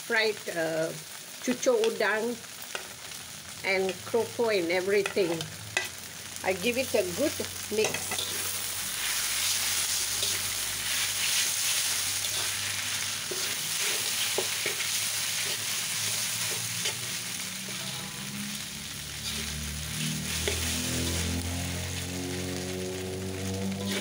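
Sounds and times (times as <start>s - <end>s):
noodles sizzling in a wok: 0.0s - 24.0s
metal spatula scraping a wok: 7.3s - 23.0s, 23.7s - 24.0s.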